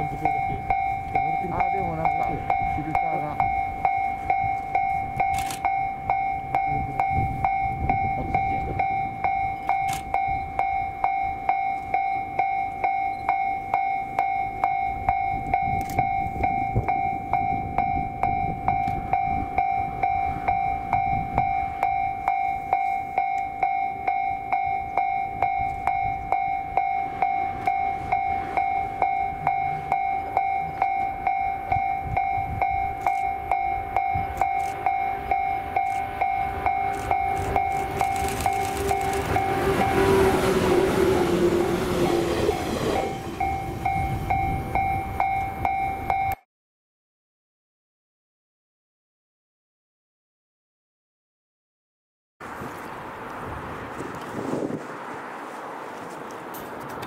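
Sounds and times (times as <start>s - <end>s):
train rumbling past: 0.0s - 32.9s, 33.5s - 46.1s
level crossing alarm ringing: 0.0s - 46.4s.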